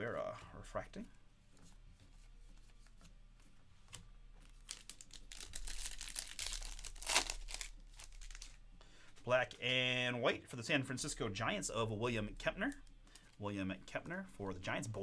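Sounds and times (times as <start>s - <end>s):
foil wrapper crinkling and tearing: 4.6s - 8.6s.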